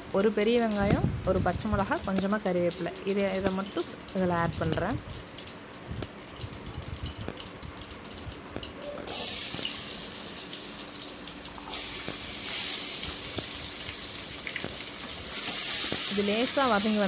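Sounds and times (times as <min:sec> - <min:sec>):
seeds crackling in hot oil: 0:00.0 - 0:17.0
onion sizzling in oil: 0:00.3 - 0:05.0, 0:09.1 - 0:17.0.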